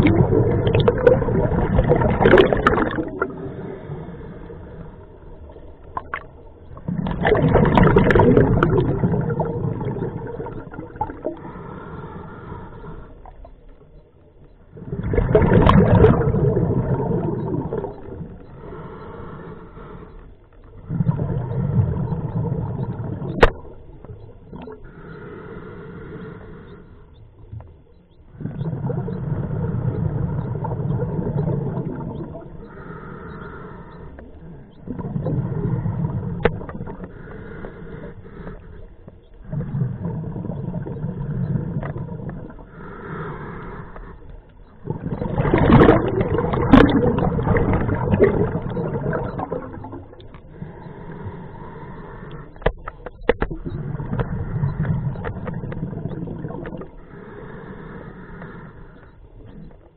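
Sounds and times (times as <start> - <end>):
exhaled bubbles rushing: 0.0 - 4.1, 5.2 - 11.6, 14.8 - 18.5, 20.8 - 24.8, 28.3 - 32.8, 34.7 - 37.1, 39.4 - 42.7, 44.7 - 51.4, 52.6 - 57.0
regulator inhale hiss: 3.3 - 5.8, 11.2 - 13.4, 18.3 - 20.7, 24.6 - 27.2, 32.6 - 34.8, 35.4 - 41.9, 42.5 - 44.8, 50.1 - 52.8, 56.8 - 59.5.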